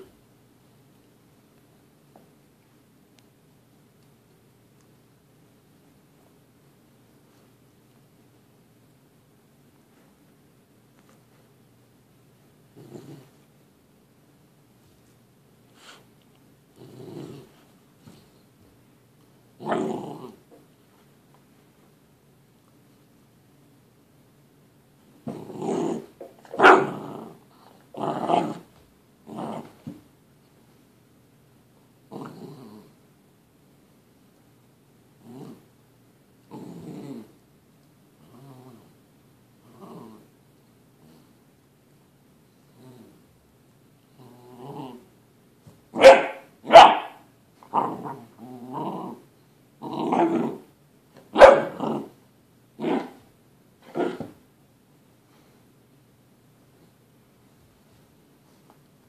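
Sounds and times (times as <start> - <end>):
puppy play-growling: 12.6 - 13.5, 16.6 - 18.5, 19.5 - 20.7, 25.2 - 30.0, 32.0 - 33.0, 35.2 - 35.8, 36.4 - 37.5, 38.1 - 39.0, 39.6 - 41.4, 42.6 - 43.4, 44.0 - 54.4
puppy barking: 26.5 - 27.0, 46.0 - 48.1, 51.3 - 52.1.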